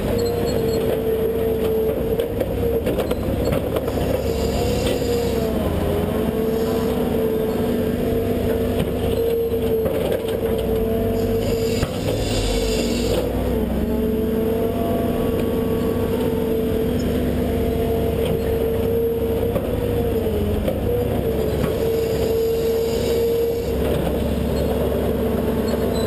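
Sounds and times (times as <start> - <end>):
excavator diesel engine whine: 0.0 - 26.0.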